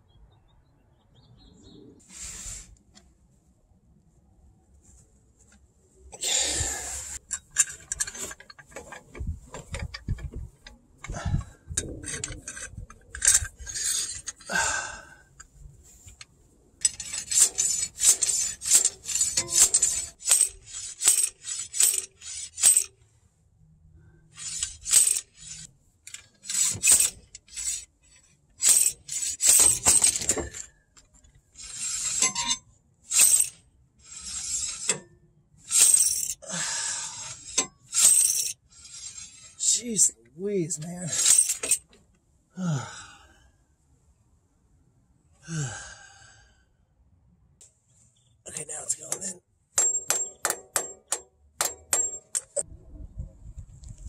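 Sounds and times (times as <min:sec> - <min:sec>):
hand ratchet clicking: 0:16.8 - 0:22.9, 0:24.4 - 0:27.9, 0:28.6 - 0:30.6, 0:35.7 - 0:36.4, 0:37.2 - 0:39.6, 0:49.8 - 0:52.6.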